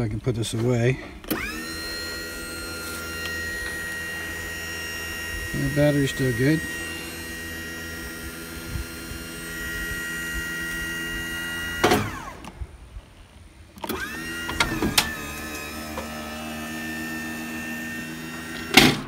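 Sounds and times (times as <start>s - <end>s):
electric motor whining: 1.0s - 13.0s, 13.7s - 19.0s
lift clicks: 13.8s - 16.2s
lift clunk: 18.5s - 19.0s.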